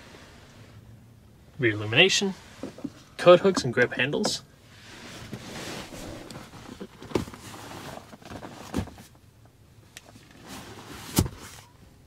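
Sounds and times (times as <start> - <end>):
rustling: 4.7 - 9.1.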